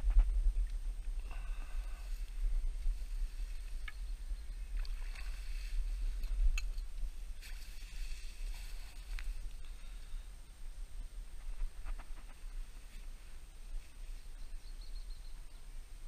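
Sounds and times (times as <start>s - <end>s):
wind rumbling on microphone: 0.0s - 16.0s
small water splashes: 4.6s - 5.9s.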